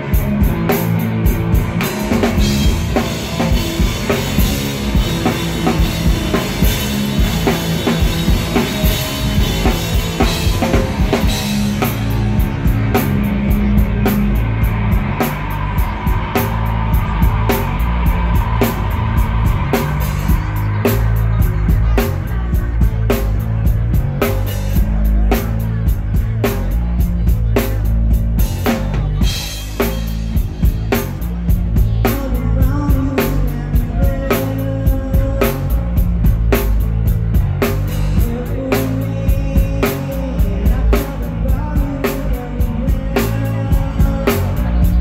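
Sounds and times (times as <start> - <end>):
distorted electric guitar: 0.0 - 45.0
drums hitting: 0.0 - 45.0
heavy bass: 0.0 - 45.0.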